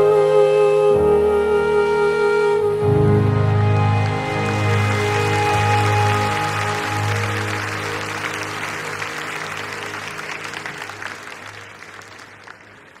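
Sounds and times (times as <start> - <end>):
band sustained chord: 2.6 - 10.6
audience applauding: 3.6 - 13.0.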